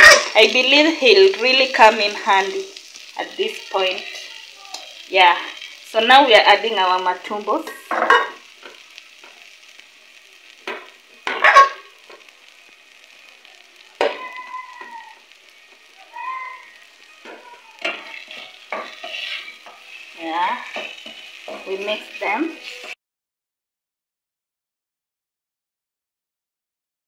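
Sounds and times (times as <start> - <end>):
food sizzling in a pot: 0.0 - 23.0
spoon scraping a pot: 7.6 - 8.4, 17.3 - 19.9.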